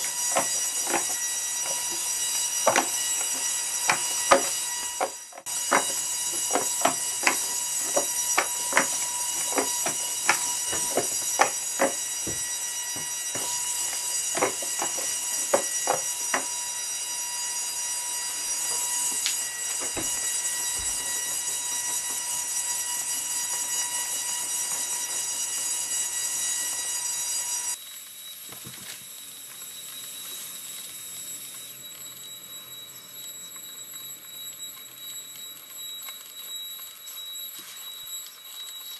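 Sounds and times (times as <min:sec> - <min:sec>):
robot servos whining: 0:00.0 - 0:16.9.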